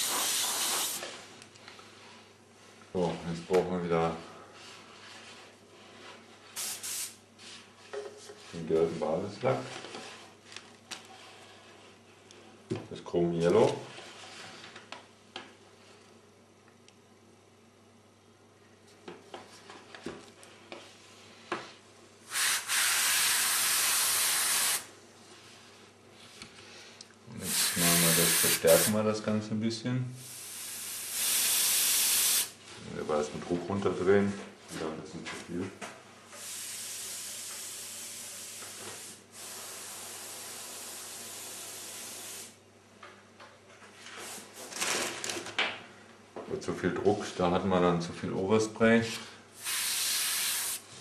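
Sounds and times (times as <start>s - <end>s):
airbrush puff: 0.0s - 1.1s, 6.6s - 7.2s, 22.3s - 24.9s, 27.4s - 29.0s, 30.2s - 32.5s, 36.4s - 42.6s, 49.6s - 50.8s
airbrush spraying hiss: 0.0s - 1.1s, 6.6s - 7.2s, 22.3s - 24.9s, 27.4s - 29.0s, 30.2s - 32.6s, 36.4s - 42.6s, 49.6s - 50.8s.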